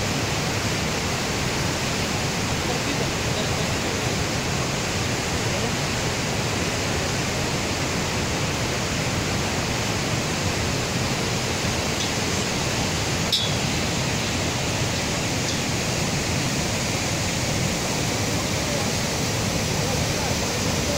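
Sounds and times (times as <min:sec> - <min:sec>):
river white water rushing: 0:00.0 - 0:20.9.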